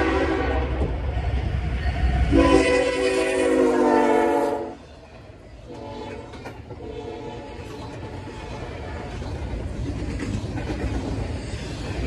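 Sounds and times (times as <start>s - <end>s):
locomotive air horn: 0.0s - 0.8s, 2.3s - 4.8s.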